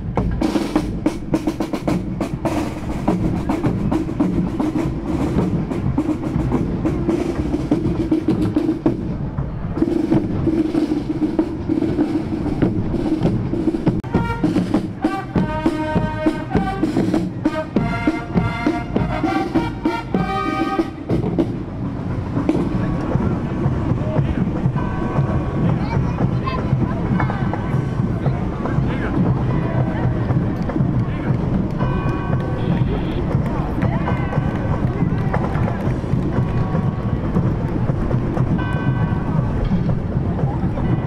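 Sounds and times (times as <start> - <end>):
drums beating march rhythm: 0.0 - 41.0
fanfare trumpets playing: 14.0 - 21.6, 31.8 - 34.7.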